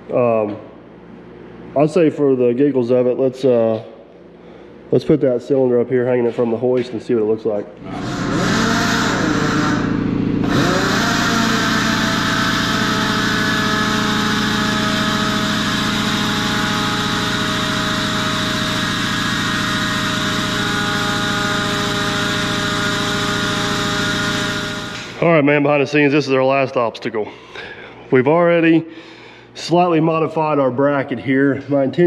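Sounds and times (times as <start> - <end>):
motor humming: 7.8 - 25.3.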